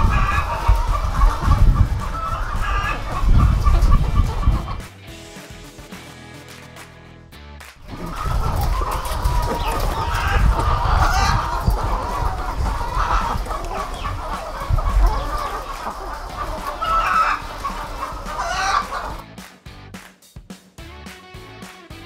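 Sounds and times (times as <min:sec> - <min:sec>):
hens clucking and squawking: 0:00.0 - 0:04.9, 0:07.8 - 0:19.2.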